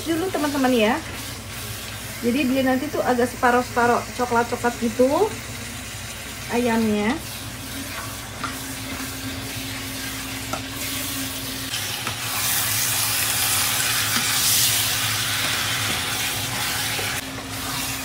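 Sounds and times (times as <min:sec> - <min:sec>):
chicken and onion sizzling in oil: 0:00.0 - 0:18.0
spatula stirring in pot: 0:12.0 - 0:18.0.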